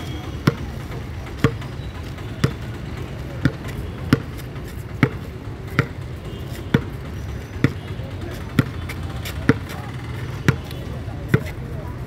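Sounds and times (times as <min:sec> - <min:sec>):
basketball bouncing on court: 0:00.0 - 0:11.6.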